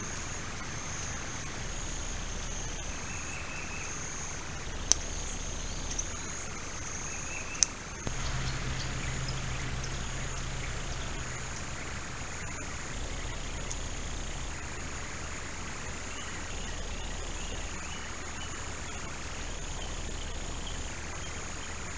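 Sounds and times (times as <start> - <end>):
low steady hum: 0.0 - 21.9
high-pitched insect drone: 8.1 - 17.8.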